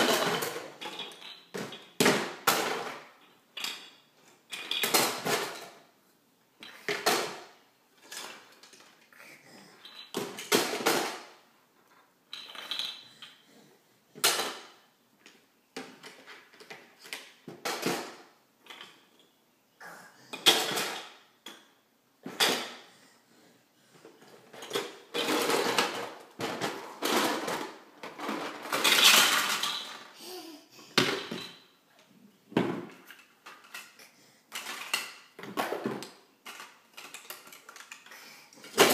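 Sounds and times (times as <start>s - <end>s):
plastic blocks clattering: 0.0s - 5.9s, 6.6s - 13.5s, 24.2s - 38.9s.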